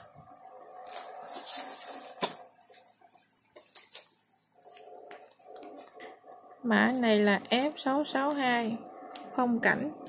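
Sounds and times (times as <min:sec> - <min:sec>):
plastic sleeves rustling: 0:00.7 - 0:05.6.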